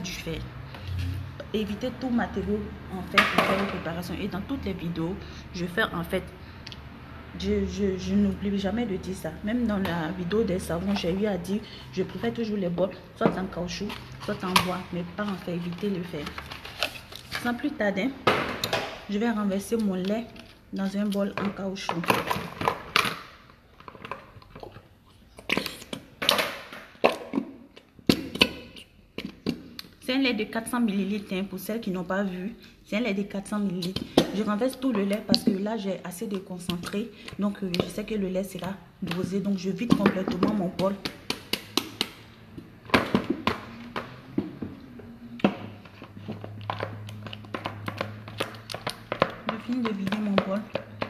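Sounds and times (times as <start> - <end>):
spoon stirring thick lotion: 9.7 - 17.6, 33.4 - 42.7, 45.4 - 51.0.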